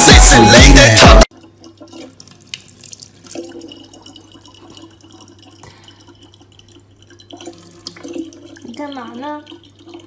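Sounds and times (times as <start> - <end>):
loud music with heavy beat: 0.0 - 1.3
tap water running into bottle: 1.3 - 10.0
water dripping: 1.3 - 10.0.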